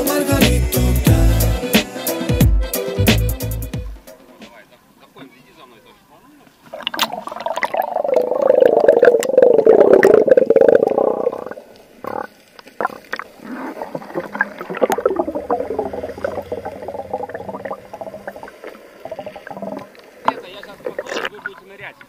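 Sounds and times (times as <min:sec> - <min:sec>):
faint underwater clicks: 0:06.4 - 0:22.0
underwater sloshing and bubbling: 0:06.5 - 0:22.0
underwater rumble: 0:06.7 - 0:21.6.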